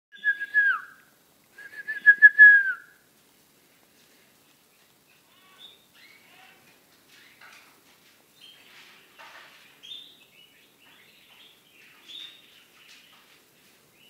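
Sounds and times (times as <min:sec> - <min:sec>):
person whistling: 0:01.6 - 0:02.9.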